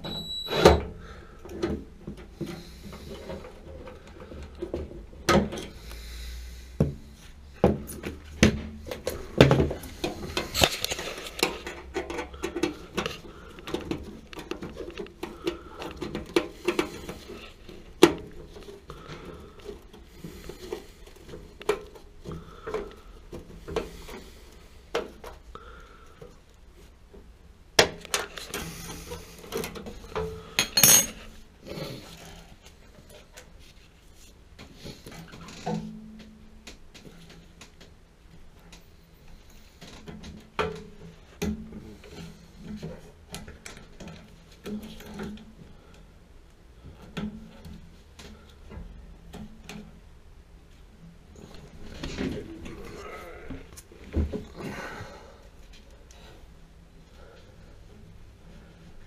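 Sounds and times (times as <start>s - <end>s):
metal clinks and knocks: 30.1s - 31.3s.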